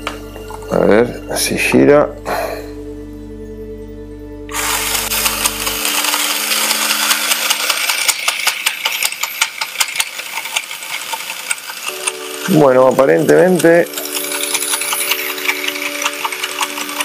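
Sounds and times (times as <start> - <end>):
toy motor whirring with gear clicking: 4.5 - 17.0.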